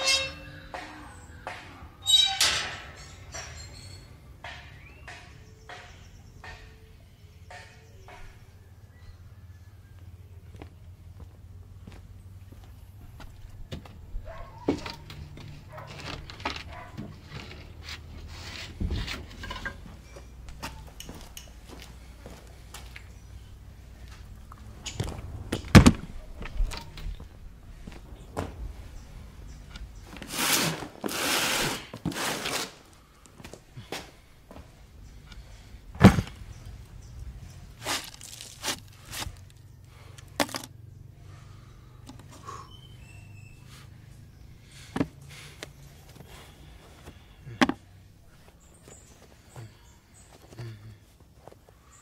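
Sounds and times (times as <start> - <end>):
wooden boards knocking and scraping: 36.0 - 36.4, 40.3 - 40.7.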